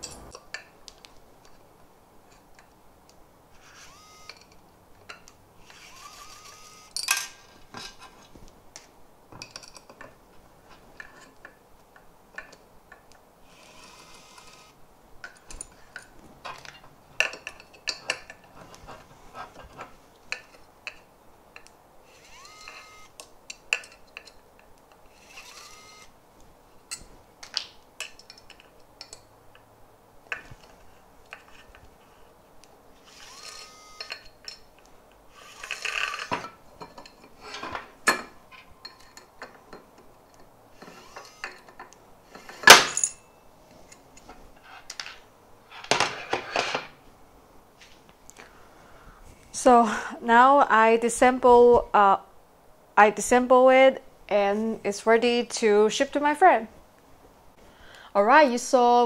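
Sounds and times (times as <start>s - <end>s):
screws and metal parts clinking: 0.0s - 0.7s, 3.7s - 8.3s, 9.4s - 10.1s, 12.4s - 18.6s, 19.6s - 25.8s, 26.9s - 29.6s, 33.0s - 34.8s, 35.4s - 46.9s
electric screwdriver whirring: 3.6s - 4.5s, 5.6s - 7.0s, 13.5s - 14.8s, 22.1s - 23.2s, 25.1s - 26.1s, 33.0s - 34.1s, 35.3s - 36.3s, 40.8s - 41.5s.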